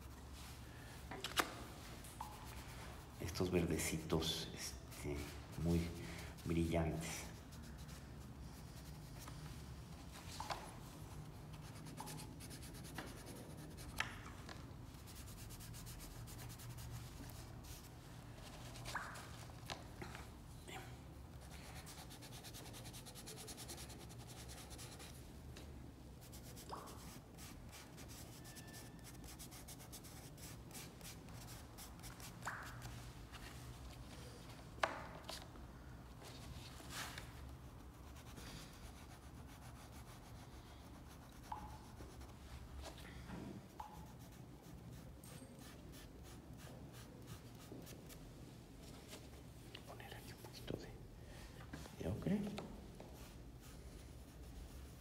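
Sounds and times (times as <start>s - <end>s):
pastel sticks scratching on paper: 11.5s - 14.1s, 21.4s - 25.2s, 26.2s - 32.9s.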